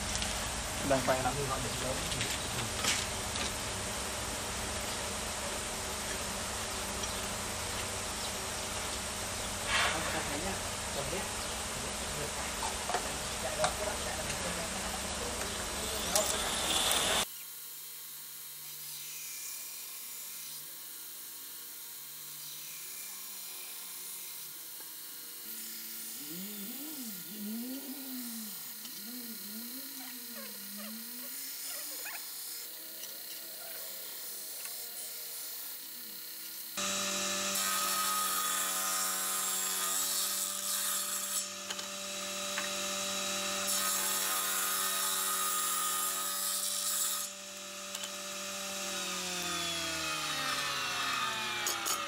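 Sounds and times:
faint workshop hiss: 0.0 - 17.2
table saw cutting wood: 0.0 - 52.0.

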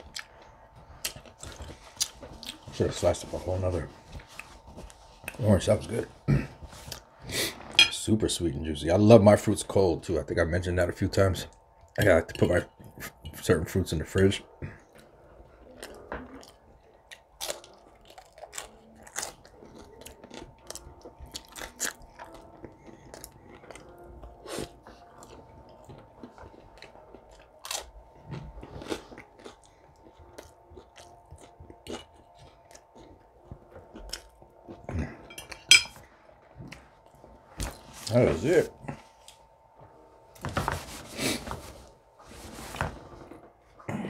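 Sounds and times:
person chewing: 0.0 - 2.7, 4.1 - 5.4, 14.7 - 36.0.

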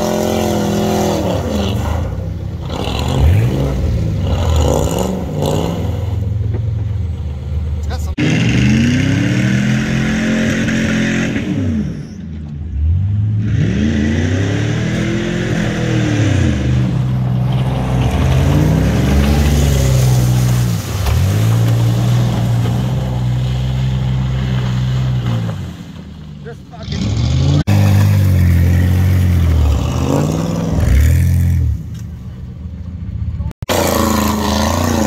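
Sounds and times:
engine revving hard: 0.0 - 6.2, 8.2 - 12.0, 12.8 - 17.1, 26.8 - 31.8, 33.6 - 35.0
tyres spinning in mud: 16.4 - 31.3.

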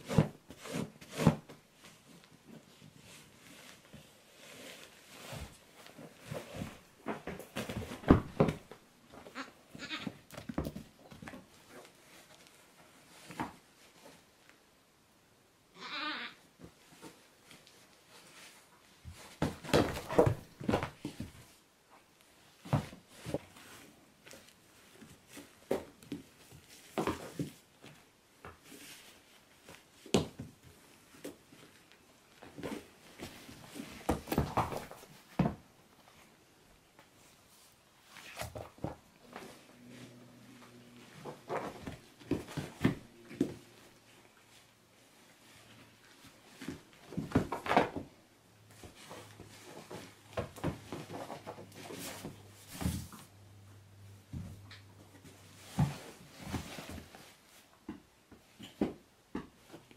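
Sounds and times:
goat thumping and scuffling on mats: 0.0 - 14.2, 16.6 - 21.7, 22.4 - 36.2, 36.9 - 44.6, 45.2 - 59.9
goat hooves knocking and scuffling: 5.3 - 12.5, 19.0 - 21.5, 29.6 - 36.0.

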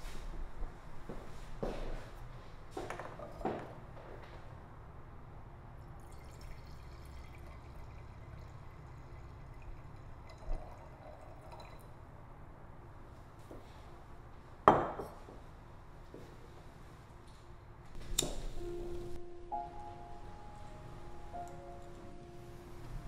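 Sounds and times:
wine pouring into glass: 6.0 - 11.9.

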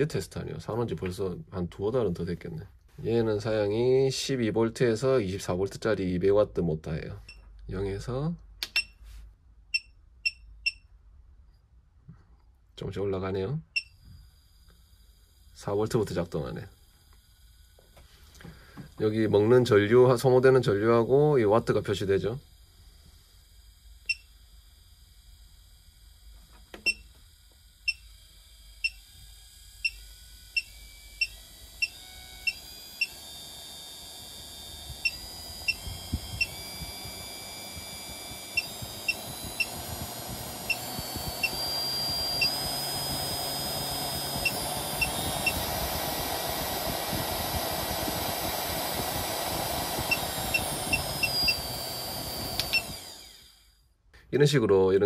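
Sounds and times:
motor whine rising in pitch: 13.8 - 54.0.

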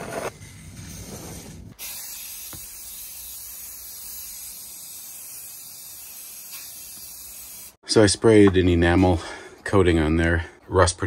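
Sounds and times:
aerosol spray can hissing: 1.8 - 7.8.

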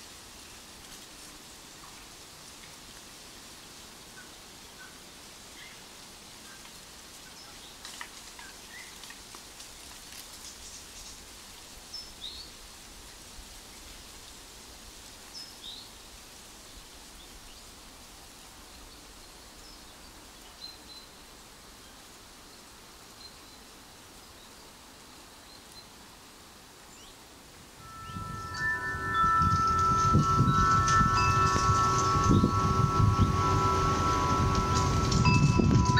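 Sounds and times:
soft woodland hiss: 0.0 - 35.3
light ticks: 6.6 - 11.2
high bird chirps: 27.8 - 34.0.

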